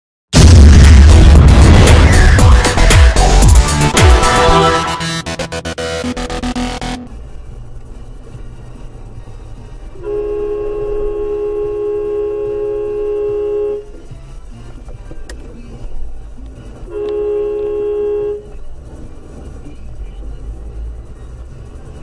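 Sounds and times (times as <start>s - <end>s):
traffic rumble: 5.2s - 22.0s
car horn honking: 9.8s - 14.4s, 16.7s - 18.8s.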